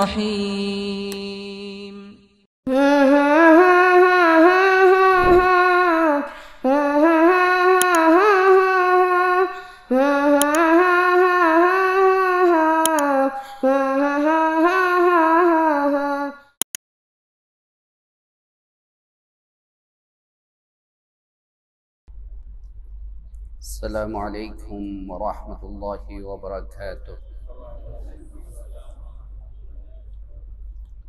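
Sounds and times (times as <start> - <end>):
person humming a melody: 0.0 - 16.4.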